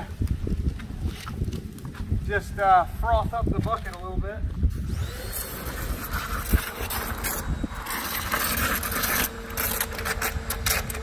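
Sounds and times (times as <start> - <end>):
pressure washer spraying water: 4.8 - 11.0.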